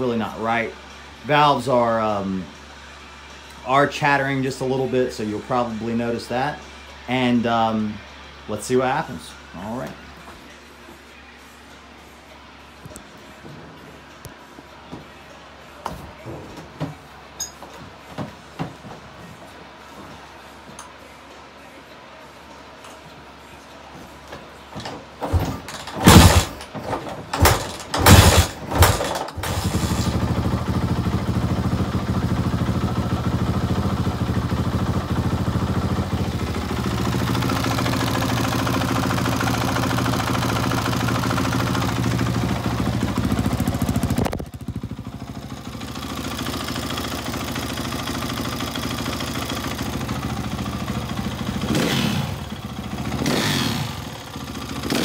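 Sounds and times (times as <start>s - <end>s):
motorcycle engine revving: 25.2s - 55.0s.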